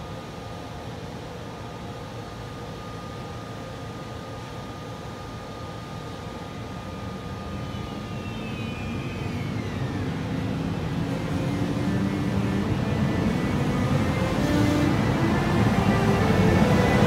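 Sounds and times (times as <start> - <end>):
falling whine: 6.9 - 17.0
steady high tone: 7.4 - 17.0.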